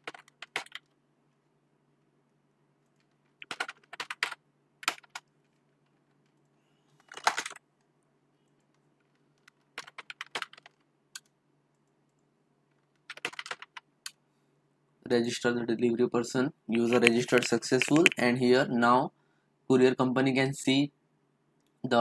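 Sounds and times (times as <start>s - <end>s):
keyboard typing: 0.0s - 1.0s, 2.8s - 5.6s, 6.2s - 7.6s, 8.5s - 12.2s, 12.8s - 14.2s, 16.8s - 18.4s
faint low hum: 0.0s - 22.0s.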